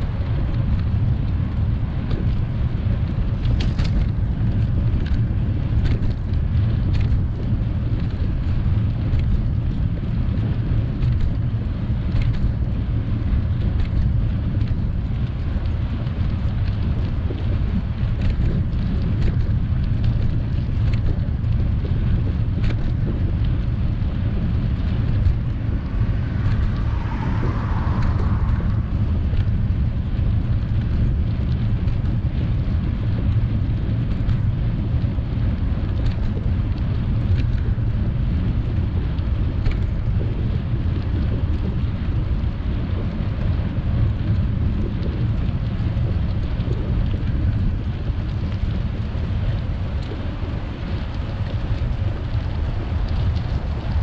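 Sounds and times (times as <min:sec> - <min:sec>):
wind buffeting microphone: 0:00.0 - 0:54.0
bicycle clicks and rattles: 0:00.1 - 0:27.0, 0:27.7 - 0:54.0.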